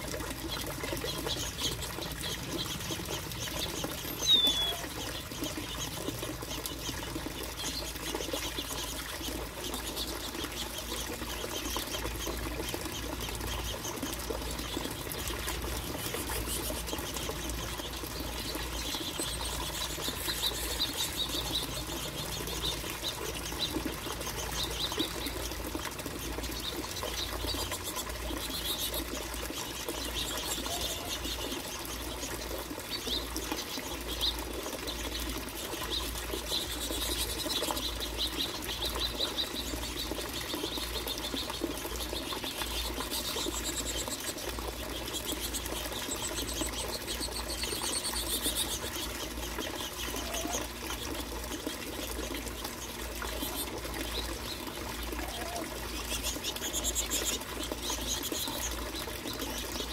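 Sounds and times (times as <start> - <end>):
finches chirping: 0.5 - 25.6, 35.8 - 51.3, 55.2 - 59.9.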